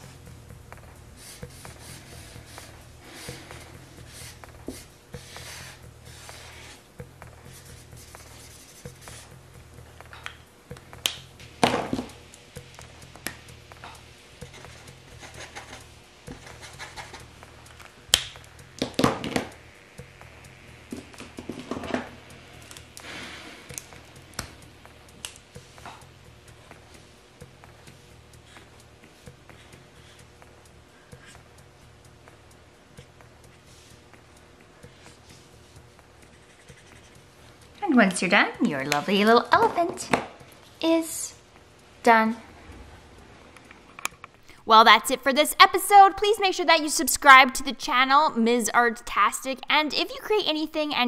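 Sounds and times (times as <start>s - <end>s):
quiet background music: 0.0s - 51.0s
marker scratching on paper: 1.2s - 9.3s, 14.4s - 17.3s, 28.5s - 30.3s, 34.8s - 37.4s
markers knocking and clicking: 18.1s - 19.6s.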